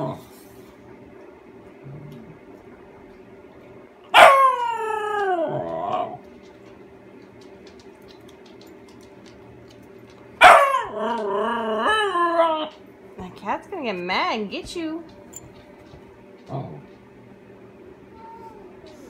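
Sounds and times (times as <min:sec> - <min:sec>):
husky howling: 0:04.1 - 0:06.3, 0:10.4 - 0:12.8.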